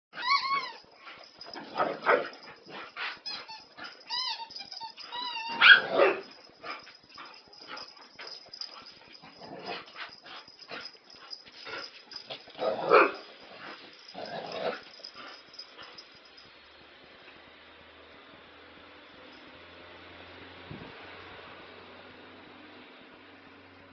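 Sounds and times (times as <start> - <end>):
dog yelps and whines: 0.2 - 6.4
dogs barking: 1.6 - 3.2, 5.5 - 6.9, 12.2 - 13.4.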